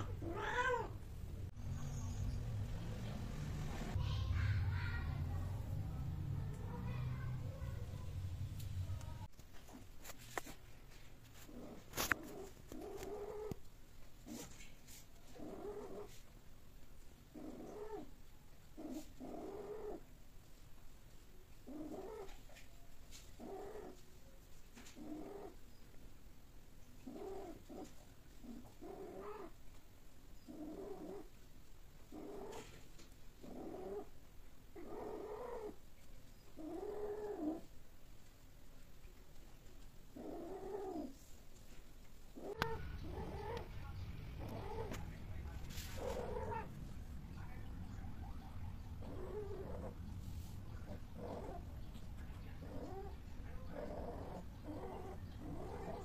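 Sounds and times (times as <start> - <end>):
cats yowling: 0.0 - 1.0, 42.4 - 43.7, 44.4 - 45.0, 45.9 - 46.8, 49.0 - 50.0, 50.9 - 51.7, 52.6 - 56.0.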